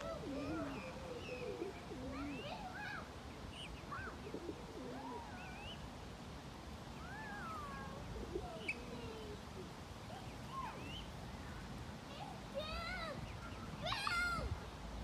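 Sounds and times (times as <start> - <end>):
birds chirping: 0.0 - 5.8.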